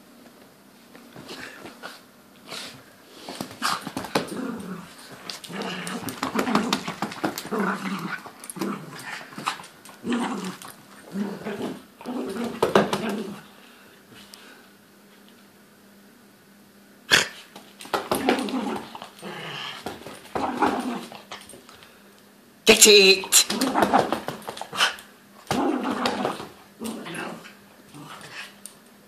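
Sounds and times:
dog growling: 3.5 - 13.6, 18.0 - 21.5, 23.4 - 28.7.

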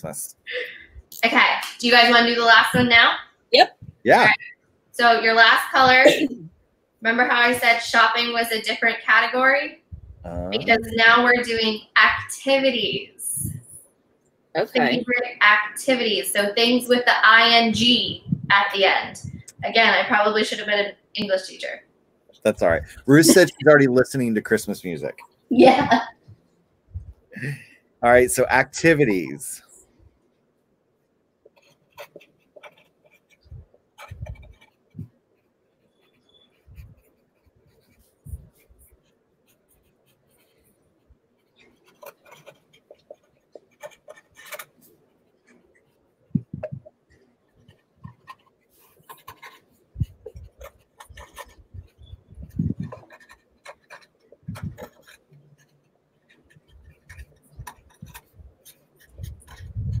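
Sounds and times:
pens scratching on paper: 10.5 - 13.7, 15.9 - 20.7, 31.5 - 60.0.

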